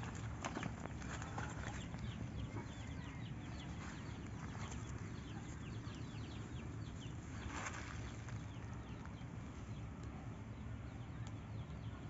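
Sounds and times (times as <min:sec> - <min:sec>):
birds chirping: 0:00.0 - 0:12.0
hand digging in dry soil: 0:07.3 - 0:08.4.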